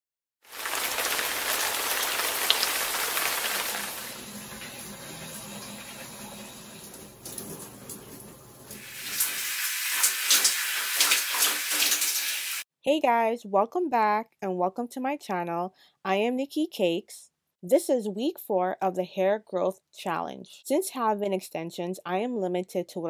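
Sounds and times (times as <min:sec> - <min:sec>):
shower water spraying on hair: 0:00.5 - 0:12.6.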